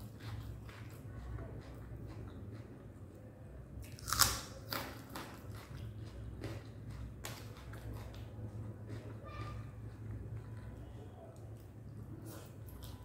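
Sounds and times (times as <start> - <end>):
soft chewing: 0.0 - 13.0
crunching bite of raw onion: 3.8 - 5.8.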